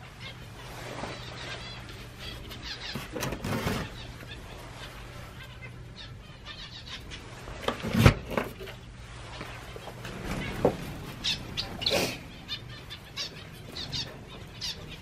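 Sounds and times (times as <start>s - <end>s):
small birds calling: 0.0s - 15.0s
steady low hum: 8.4s - 15.0s.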